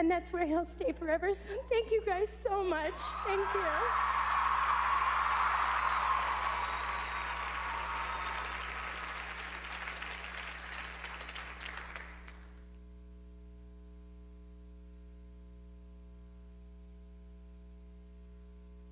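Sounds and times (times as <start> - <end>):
audience applauding: 3.0 - 12.6.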